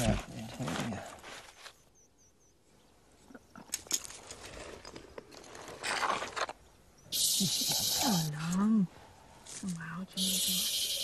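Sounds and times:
dry soil scraping and crunching: 0:00.0 - 0:01.8, 0:04.0 - 0:06.7
loud steady hiss: 0:07.1 - 0:08.4, 0:10.2 - 0:11.0.

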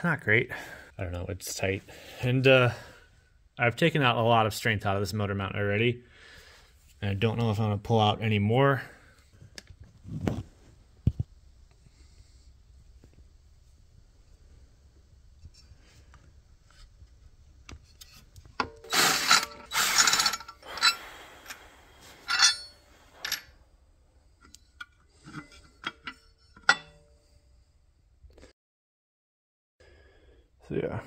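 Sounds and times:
metal tools clinking: 0:18.0 - 0:23.5, 0:24.7 - 0:27.0.

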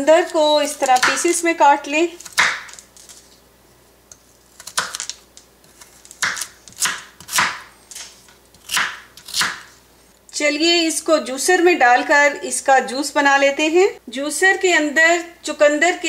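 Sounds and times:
knife chopping on wooden board: 0:02.2 - 0:02.8, 0:05.7 - 0:07.7, 0:08.6 - 0:09.7.

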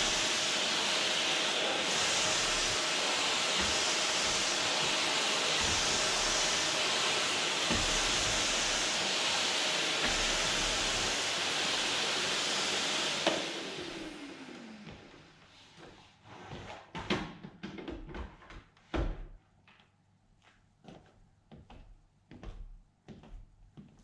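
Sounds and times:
vacuum cleaner running: 0:00.0 - 0:15.9.

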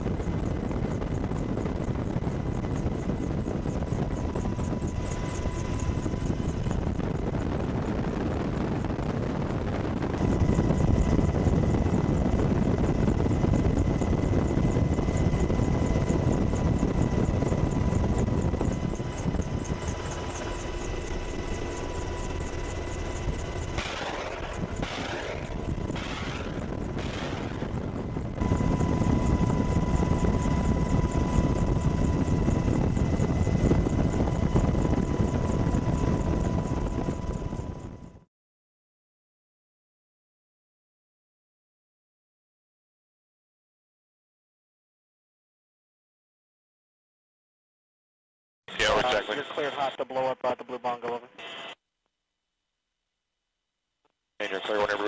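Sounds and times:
thin steady whine: 0:00.0 - 0:38.2, 0:48.7 - 0:51.8, 0:54.4 - 0:55.0
helicopter rotor and turbine rumble: 0:00.0 - 0:38.3, 0:48.7 - 0:51.8, 0:54.4 - 0:55.0.

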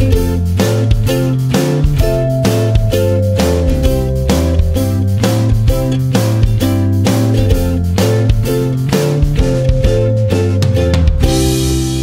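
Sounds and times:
background music with strummed guitar: 0:00.0 - 0:12.0.

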